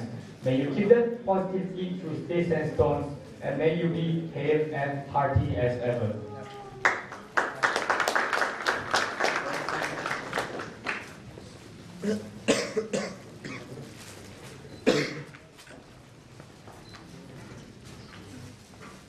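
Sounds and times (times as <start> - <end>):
audience applause: 6.8 - 11.2.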